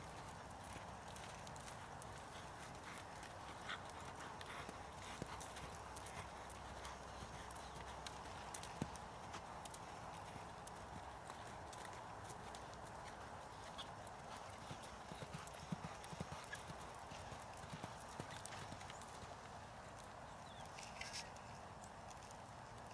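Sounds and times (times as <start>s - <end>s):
horse hoofbeats on sand: 12.4s - 19.4s.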